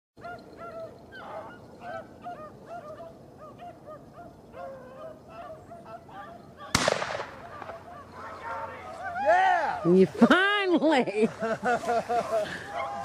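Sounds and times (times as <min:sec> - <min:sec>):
dogs baying: 0:00.2 - 0:06.8, 0:07.4 - 0:09.8, 0:12.1 - 0:13.0.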